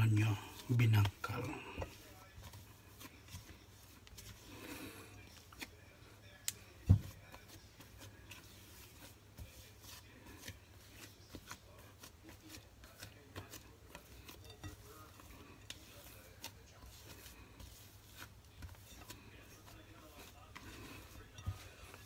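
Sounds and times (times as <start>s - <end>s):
spatula scraping a glass bowl: 7.2s - 22.0s.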